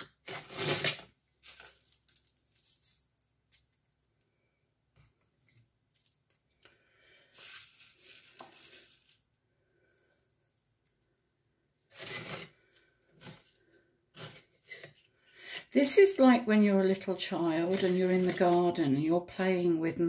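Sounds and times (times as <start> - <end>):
sugar scrub scraping in a bowl: 11.9 - 12.5, 16.0 - 20.0.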